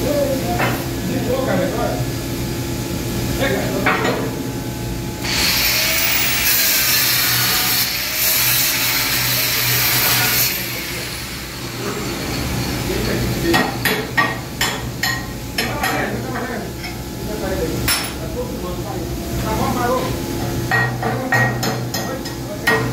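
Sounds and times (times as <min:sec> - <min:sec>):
angle grinder grinding metal: 0:05.2 - 0:13.2.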